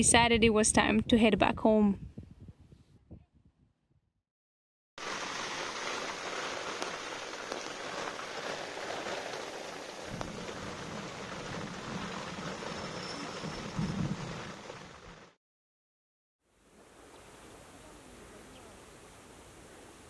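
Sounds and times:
steady rain: 0:05.0 - 0:15.4
low rumble of thunder: 0:10.1 - 0:15.2.

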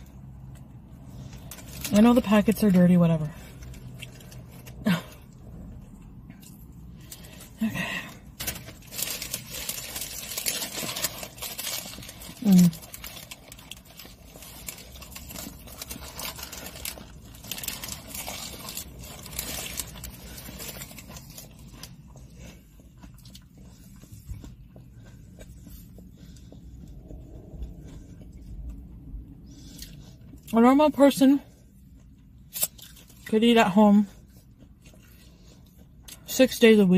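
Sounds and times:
food wrappers crinkling: 0:08.1 - 0:24.0.

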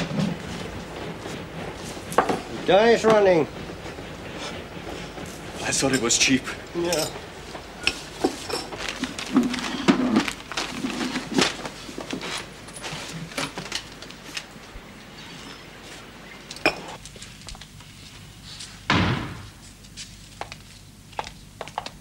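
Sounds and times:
door slamming: 0:18.9 - 0:19.5.

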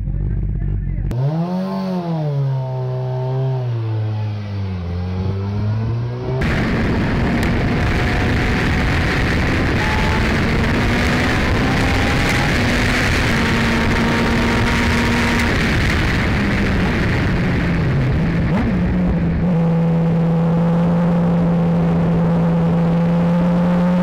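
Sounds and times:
motorcycle engine revving: 0:00.0 - 0:24.0
wind rush on camera: 0:06.2 - 0:24.0.

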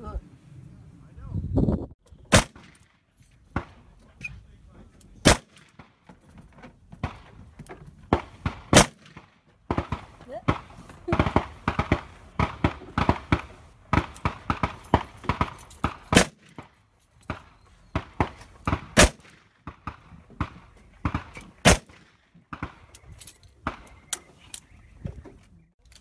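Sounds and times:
loud revolver shots: 0:02.3 - 0:02.8, 0:05.2 - 0:06.0, 0:08.1 - 0:16.6, 0:17.3 - 0:23.0
quieter distant gunshots: 0:02.3 - 0:03.9, 0:05.2 - 0:06.1, 0:06.9 - 0:23.0.

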